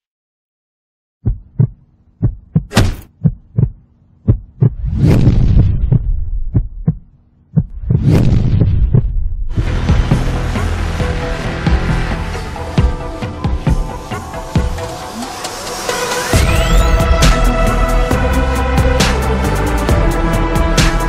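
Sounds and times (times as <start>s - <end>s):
punch and kick hits: 2.6s - 3.2s
rushing swells: 9.5s - 19.6s
music: 9.5s - 21.0s.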